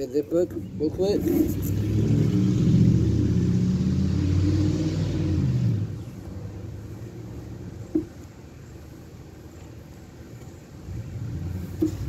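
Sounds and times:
vehicle engine running: 9.8s - 12.0s.

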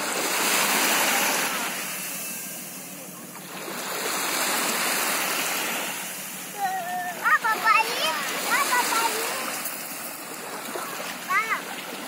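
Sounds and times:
small waves washing on shore: 0.0s - 12.0s.

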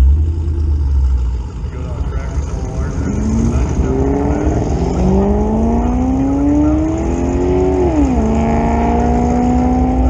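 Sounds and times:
pickup engine revving through gears: 2.4s - 10.0s.

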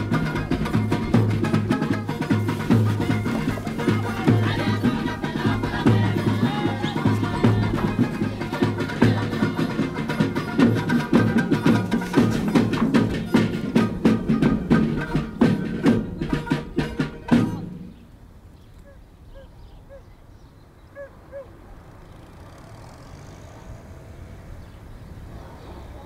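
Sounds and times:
percussive music with busy beat: 0.0s - 17.8s.

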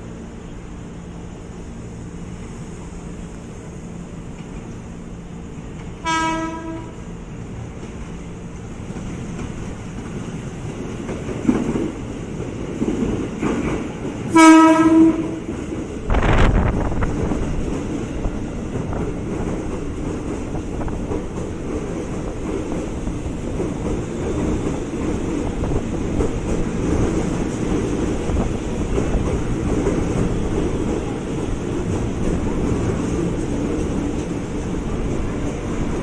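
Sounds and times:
train wheels rumbling and clattering: 0.0s - 36.0s
train horn blasts: 6.0s - 7.0s, 14.3s - 15.5s.

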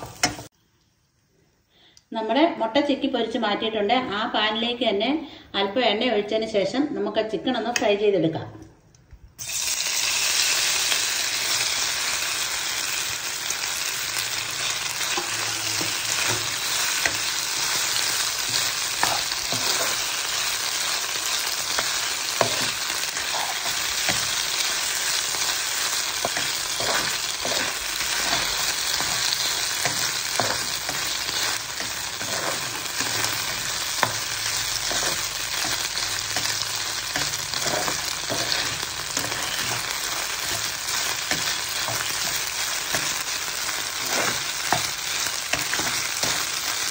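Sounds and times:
chicken sizzling in oil: 0.0s - 0.6s, 9.4s - 46.9s
spatula scraping pan: 14.4s - 46.9s.

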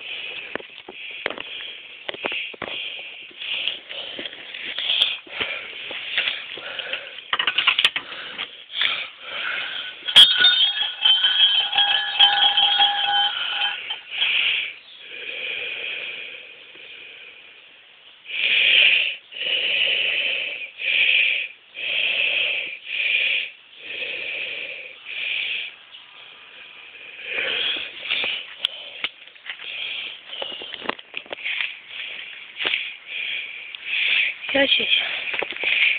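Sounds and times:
bell clanking and jingling: 10.0s - 14.4s.

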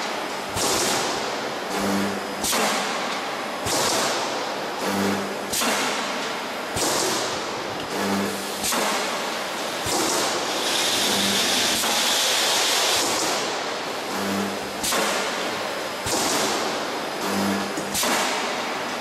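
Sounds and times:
machinery hissing bursts: 8.4s - 17.3s.

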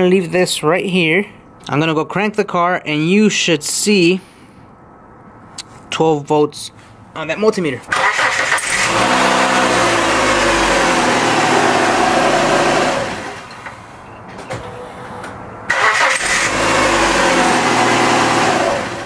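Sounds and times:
car engine cranking: 7.9s - 13.7s, 15.7s - 19.0s.

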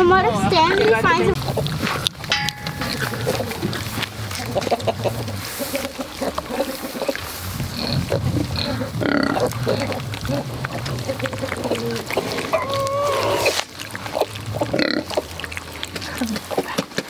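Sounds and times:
piglets chewing and smacking: 0.4s - 17.0s
piglets grunting: 0.5s - 2.0s, 3.4s - 16.8s
high-pitched piglet call: 11.5s - 13.6s.

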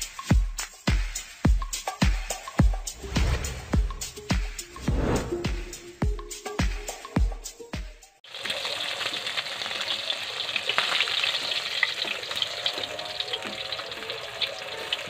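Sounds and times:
intro music: 2.8s - 6.5s
fish frying in oil: 8.2s - 15.0s.

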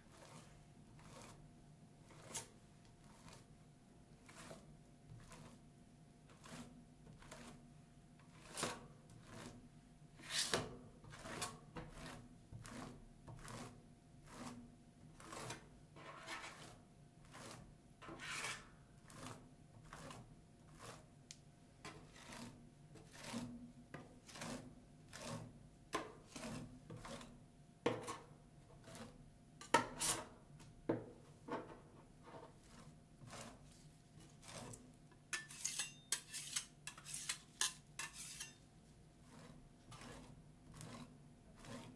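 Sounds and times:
metal spatulas scraping steel plate: 2.2s - 2.5s, 10.2s - 12.8s, 15.2s - 20.2s, 26.0s - 27.3s, 27.9s - 30.3s, 34.2s - 38.6s, 39.2s - 41.9s.

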